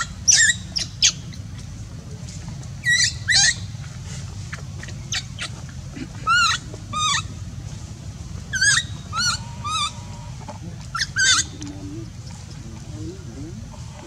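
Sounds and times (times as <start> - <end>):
baby monkey crying: 0.0 - 1.2, 2.8 - 3.7, 6.2 - 7.3, 8.5 - 10.1, 10.9 - 11.6
low background hum: 0.0 - 14.0.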